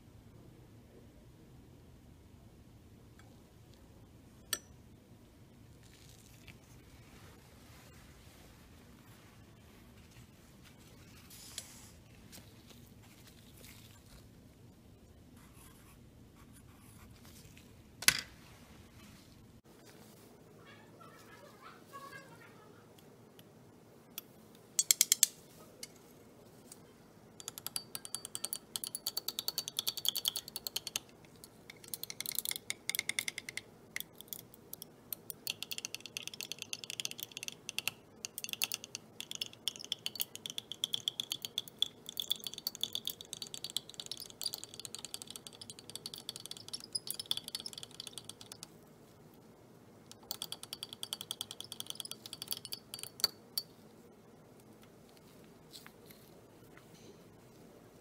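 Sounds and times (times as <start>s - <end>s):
glass rod clinking in beaker: 27.4s - 48.7s, 50.1s - 53.7s
rod tapping beaker: 27.4s - 48.7s, 50.1s - 53.7s.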